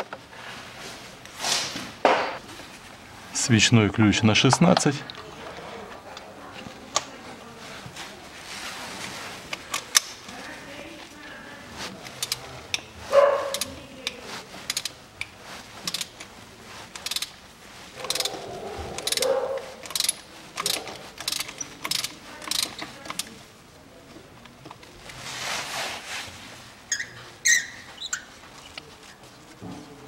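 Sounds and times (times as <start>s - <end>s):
ratchet wrench clicking: 12.2s - 12.9s, 13.5s - 13.7s, 14.7s - 15.3s, 15.9s - 16.2s, 16.9s - 17.4s, 18.0s - 18.3s, 19.0s - 23.3s.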